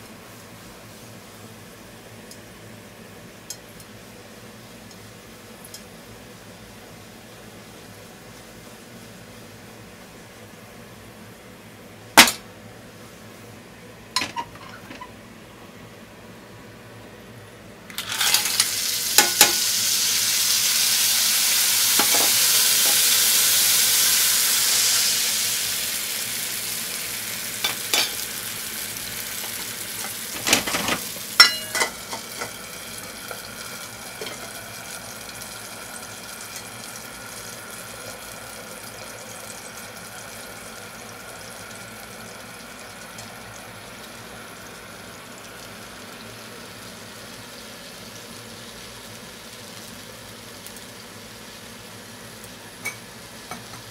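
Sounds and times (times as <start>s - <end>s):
clams sizzling in hot oil: 17.9s - 53.9s.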